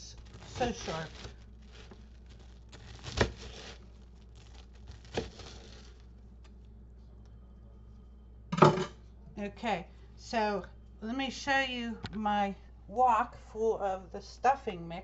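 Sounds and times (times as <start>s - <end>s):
knife crunching toasted bread: 0.0s - 6.1s.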